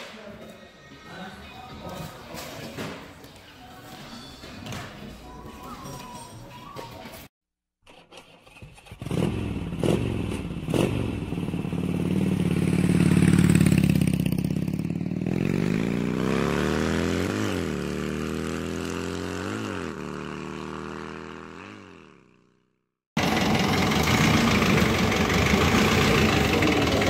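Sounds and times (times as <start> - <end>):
motorcycle engine accelerating: 8.4 - 27.0.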